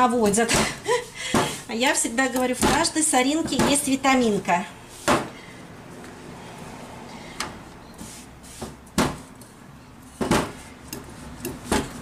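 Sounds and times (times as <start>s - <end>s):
rolling pin rolling dough: 8.0s - 12.0s.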